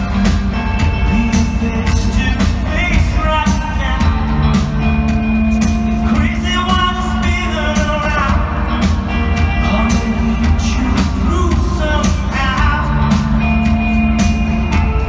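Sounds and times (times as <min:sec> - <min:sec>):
live rock band playing: 0:00.0 - 0:15.0
man singing lead vocal: 0:00.0 - 0:15.0.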